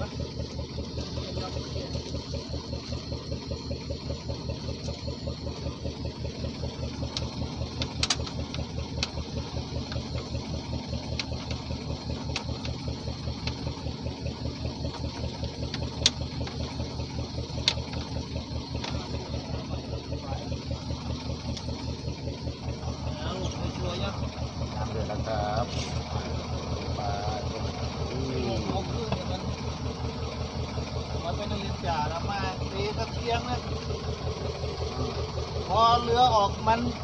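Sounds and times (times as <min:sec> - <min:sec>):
boat engine running: 0:00.0 - 0:37.0
sharp clicks and knocks: 0:06.8 - 0:13.9, 0:14.8 - 0:19.3.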